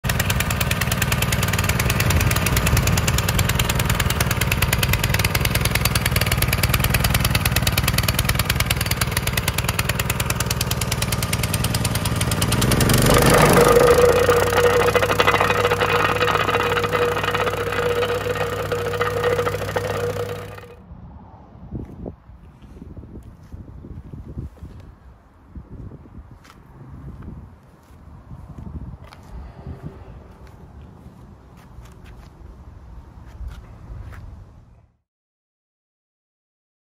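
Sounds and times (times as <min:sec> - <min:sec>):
plate compactor rattling: 0:00.0 - 0:20.8.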